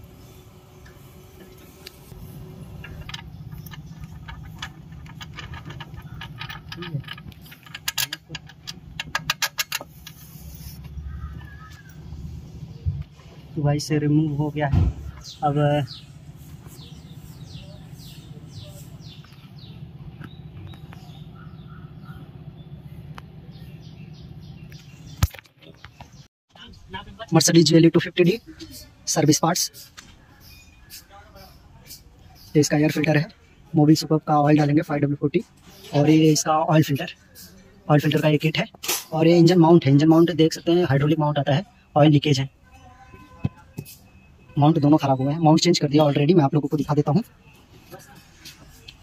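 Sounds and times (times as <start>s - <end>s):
small birds chirping: 0.0s - 49.0s
ratchet wrench clicking: 2.8s - 10.3s.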